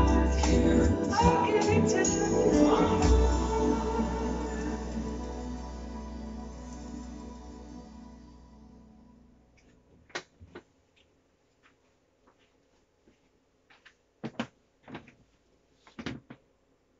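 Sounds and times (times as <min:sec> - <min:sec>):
keyboard chord: 0:00.0 - 0:09.5
knocks and clunks of handling equipment: 0:13.8 - 0:15.3, 0:15.9 - 0:16.5.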